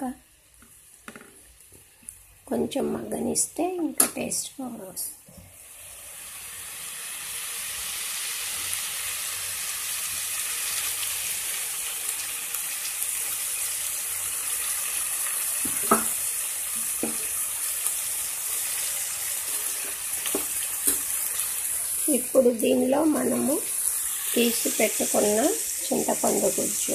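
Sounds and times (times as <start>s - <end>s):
fish sizzling in oil: 5.4s - 26.9s.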